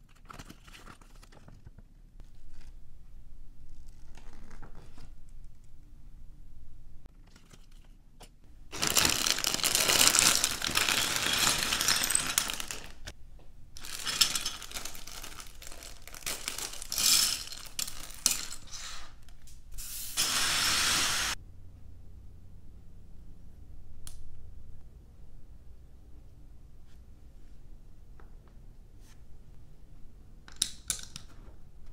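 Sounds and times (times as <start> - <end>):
plastic bag crinkling: 8.7 - 13.1, 13.8 - 18.7
plastic bricks clattering on wood: 8.8 - 13.1.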